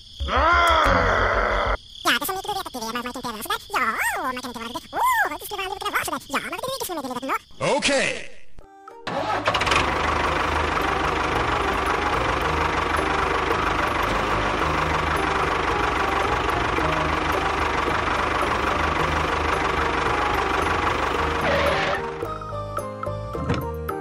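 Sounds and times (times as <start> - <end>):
tractor engine chugging: 9.1 - 23.8.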